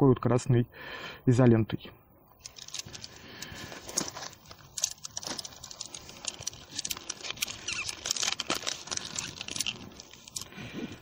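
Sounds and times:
metal tent poles clinking: 2.4s - 10.5s.

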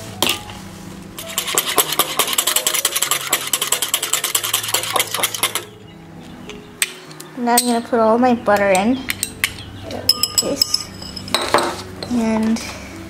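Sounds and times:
whisk clicking against ceramic bowl: 1.2s - 5.7s.

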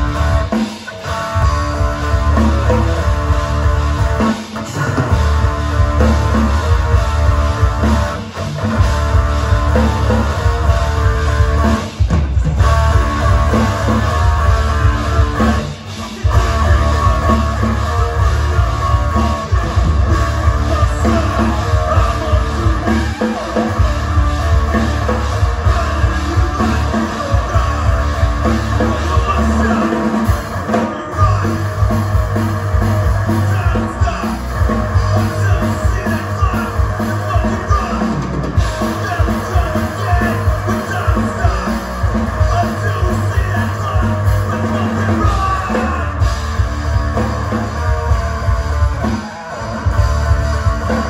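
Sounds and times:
rock band playing: 0.0s - 51.0s
person singing: 13.5s - 32.0s, 32.8s - 46.4s.

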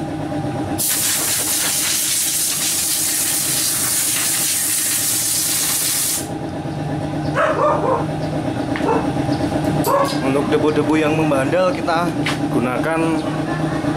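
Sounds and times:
air compressor running: 0.0s - 13.9s
compressed air hissing: 0.8s - 6.3s.

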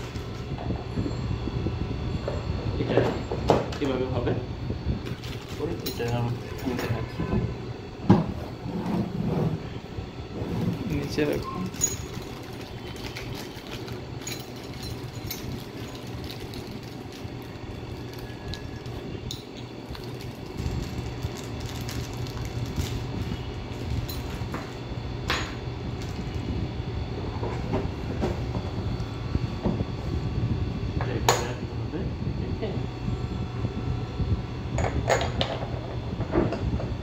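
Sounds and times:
steady low hum: 0.0s - 37.0s
plastic bag crinkling: 19.9s - 24.0s.

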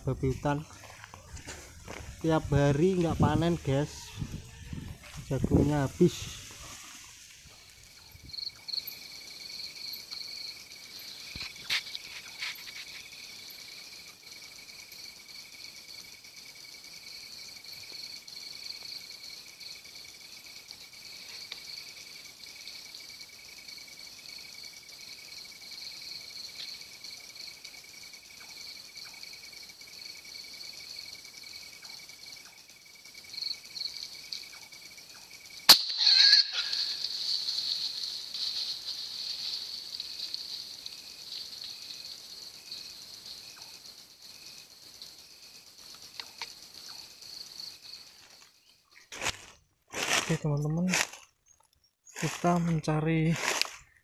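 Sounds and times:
night insects trilling: 0.0s - 54.0s
scuffling noise: 0.2s - 7.8s, 11.4s - 13.1s, 49.1s - 51.3s, 52.2s - 53.9s.

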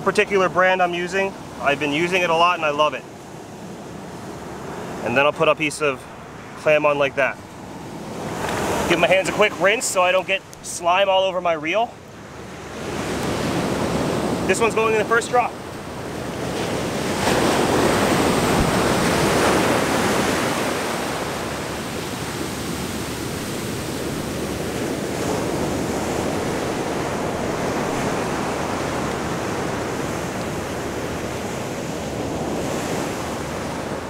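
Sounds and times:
ocean surf breaking on beach: 0.0s - 34.0s.

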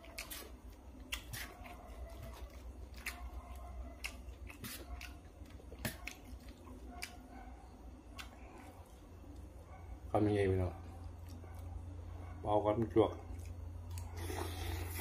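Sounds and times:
person chewing: 0.0s - 7.3s, 8.0s - 9.6s, 13.3s - 15.0s
steady low hum: 0.0s - 15.0s.

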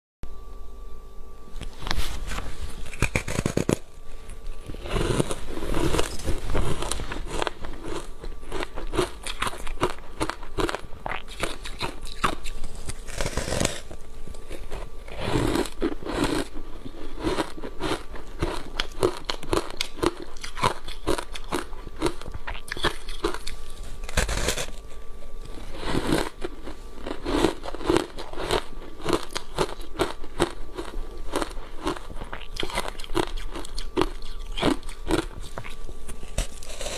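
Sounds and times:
ice crunching while chewed: 1.8s - 36.9s.

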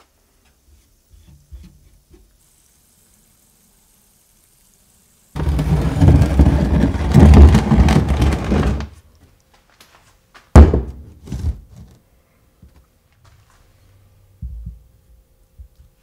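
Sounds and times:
rustling and scraping: 5.4s - 9.0s, 11.1s - 12.0s.

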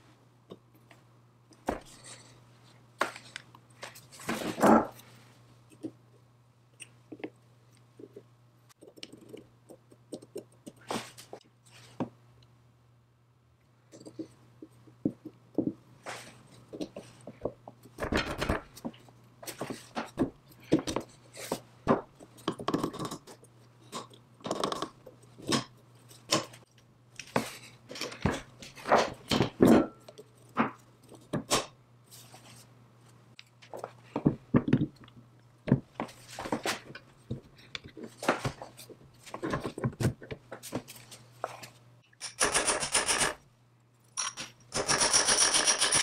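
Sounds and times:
metal parts clinking and scraping: 42.2s - 43.4s, 44.0s - 46.0s.

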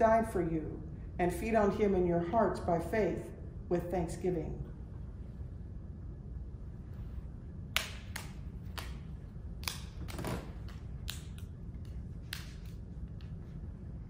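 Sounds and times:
low room hum: 0.0s - 14.0s.

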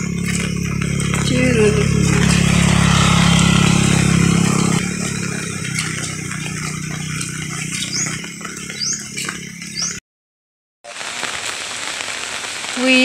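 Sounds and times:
rain hissing: 0.0s - 8.5s, 10.9s - 13.0s
small vehicle engine running: 0.0s - 10.0s.

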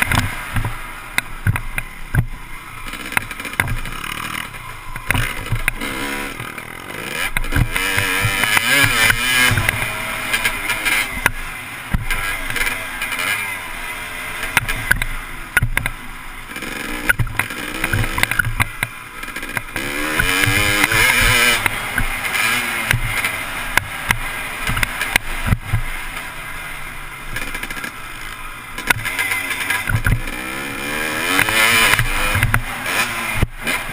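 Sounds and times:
knocks from bumps: 0.0s - 4.4s, 5.0s - 6.6s, 7.2s - 12.7s, 14.5s - 16.0s, 17.0s - 25.9s, 28.8s - 30.4s
dirt bike engine revving: 0.0s - 33.9s.

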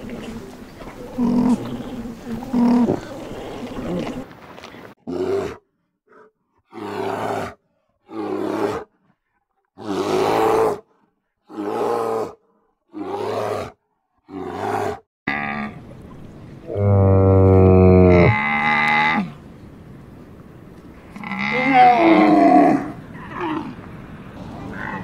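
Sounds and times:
big cat roaring: 6.7s - 8.9s, 9.8s - 10.8s, 11.5s - 15.8s, 16.7s - 19.3s, 21.2s - 23.8s.

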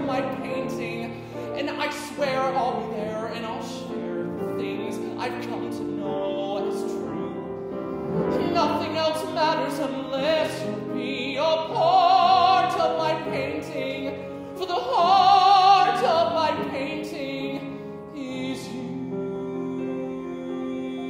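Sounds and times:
man singing with vibrato: 0.0s - 21.0s
musical accompaniment: 0.0s - 21.0s.

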